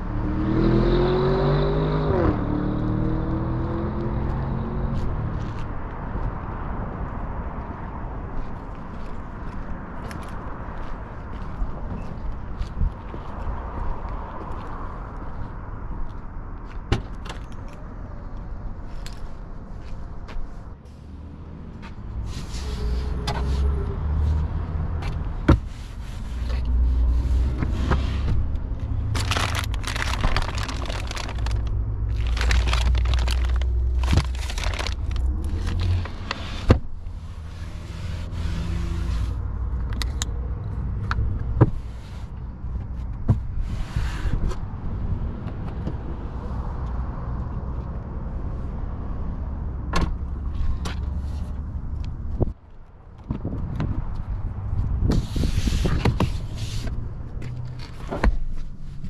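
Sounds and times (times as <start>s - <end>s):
plastic wrap crinkling: 29.2s - 35.8s
wind buffeting microphone: 53.2s - 56.5s.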